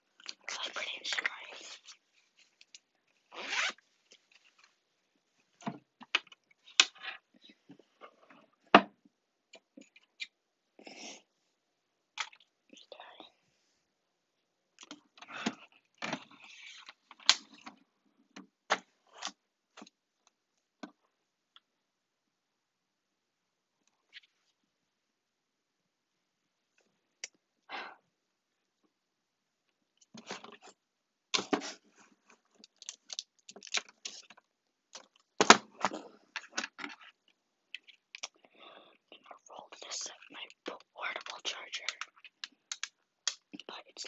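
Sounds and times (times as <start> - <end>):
small objects clicking and knocking: 32.5 - 38.4.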